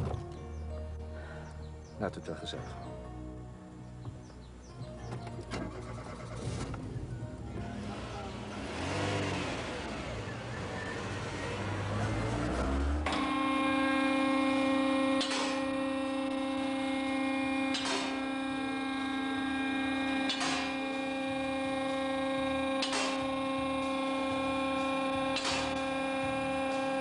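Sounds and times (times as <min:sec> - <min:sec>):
steady hum: 0:13.1 - 0:27.0.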